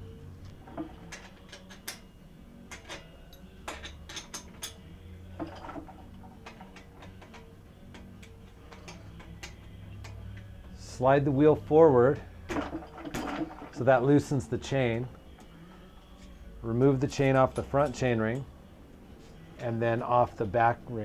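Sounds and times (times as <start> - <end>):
wrench metallic clicks: 0.5 - 2.1, 2.7 - 4.8.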